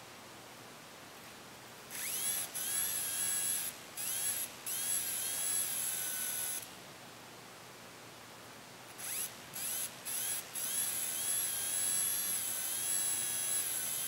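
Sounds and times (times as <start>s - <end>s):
thin high steady whine: 0.0s - 14.0s
electric motor whining as it spins up: 1.9s - 6.7s, 9.0s - 14.0s.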